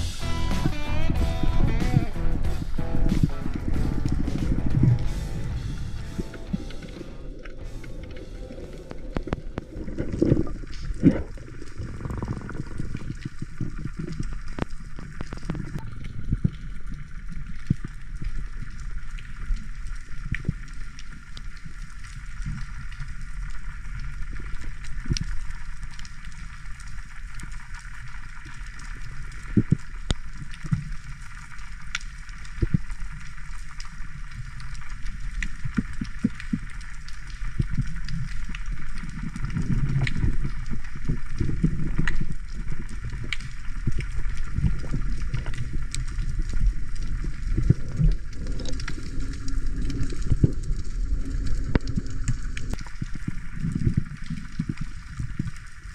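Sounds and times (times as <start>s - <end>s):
steady hiss: 0.0s - 12.7s
underwater rumble of moving water: 2.4s - 55.9s
sharp clicks and crackles: 6.1s - 55.9s.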